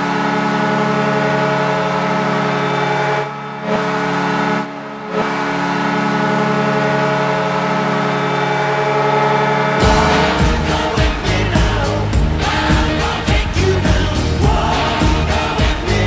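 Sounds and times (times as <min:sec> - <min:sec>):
hockey goal horn blast: 0:00.0 - 0:12.6.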